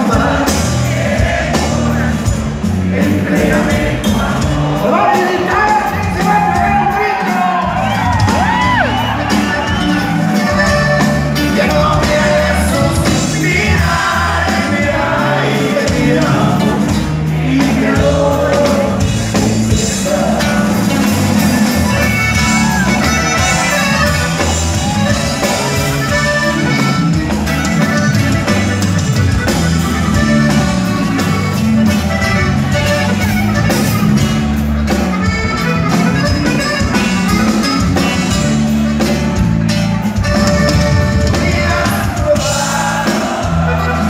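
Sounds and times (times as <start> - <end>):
live band playing: 0.0 - 44.0
crowd shouting and whooping: 4.8 - 16.6, 19.8 - 29.6, 36.9 - 44.0
button accordion: 9.2 - 17.1, 19.3 - 41.9, 43.0 - 44.0
person singing: 11.4 - 22.0, 41.1 - 44.0.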